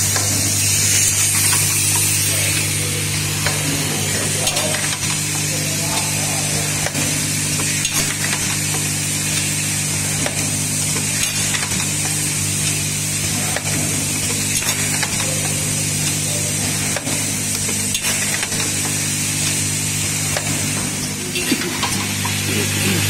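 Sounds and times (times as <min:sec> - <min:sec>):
machine humming: 0:00.0 - 0:23.0
mechanical clicks and clacks: 0:04.4 - 0:05.2, 0:06.8 - 0:09.5, 0:13.5 - 0:19.6.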